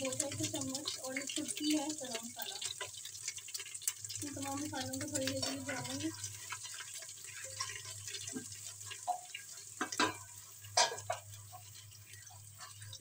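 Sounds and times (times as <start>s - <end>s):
spices crackling in oil: 0.0s - 13.0s
spoon scraping a pot: 5.2s - 13.0s.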